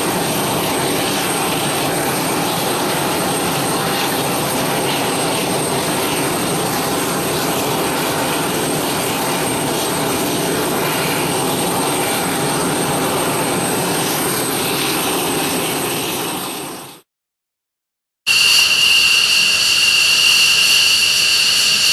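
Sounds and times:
jet engines running: 0.0s - 17.1s.

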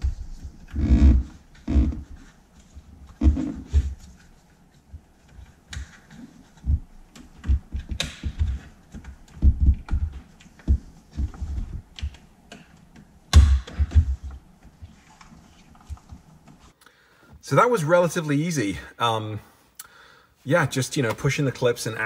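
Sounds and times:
plastic scraping: 0.0s - 4.4s.

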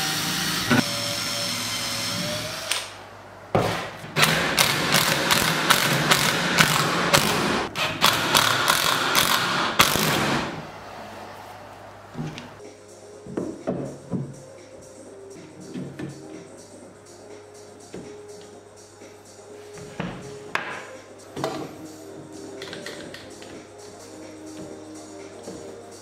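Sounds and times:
cordless drill running: 0.0s - 2.8s
impact driver hammering: 3.6s - 10.6s.

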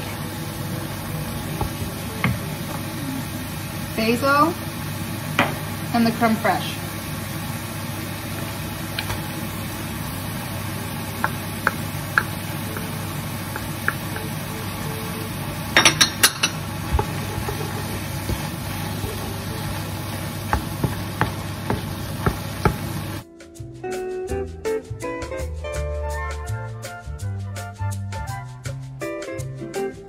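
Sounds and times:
food sizzling in a frying pan: 0.0s - 23.2s
wooden spoon tapping a pan: 11.2s - 14.4s, 15.8s - 23.2s.

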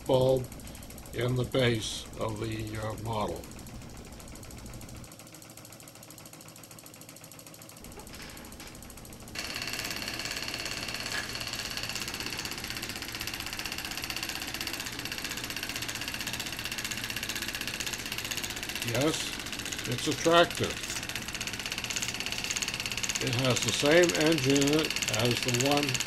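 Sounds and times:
model tractor engine whining: 8.1s - 26.0s
stirling engines ticking: 9.4s - 26.0s.

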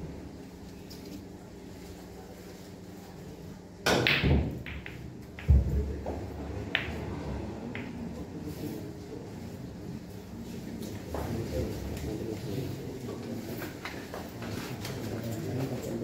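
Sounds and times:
billiard ball crack: 3.8s - 8.1s
billiard balls clicking: 4.0s - 5.6s, 6.6s - 7.1s.

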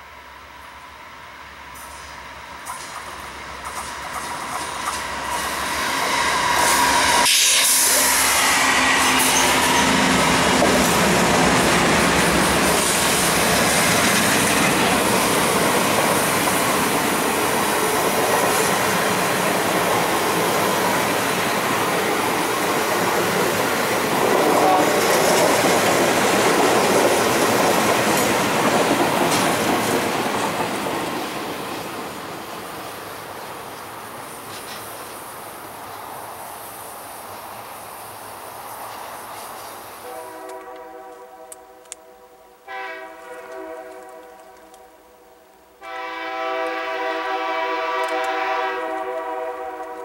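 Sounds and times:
train wheels on rails: 0.0s - 45.0s, 45.8s - 50.0s
diesel locomotives passing: 0.0s - 50.0s.

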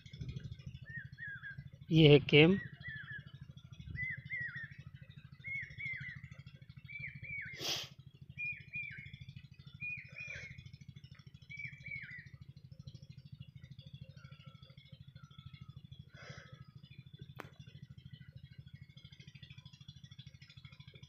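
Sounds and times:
faint fast-pulsing hum: 0.0s - 21.0s
small bird chirping: 0.1s - 12.4s.

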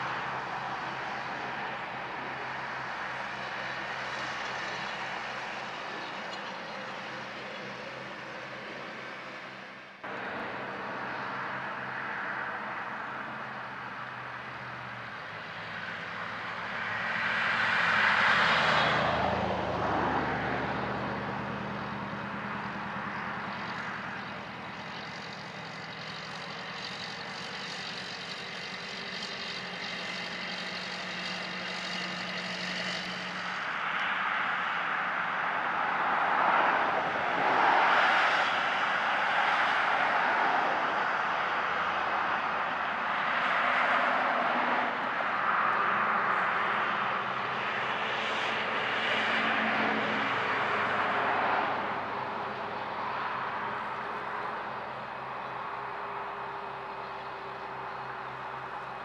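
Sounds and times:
vehicle passing by: 0.0s - 59.0s
tractor engine mowing: 3.0s - 10.6s, 20.9s - 33.7s
backhoe loader engine running: 19.1s - 33.4s.

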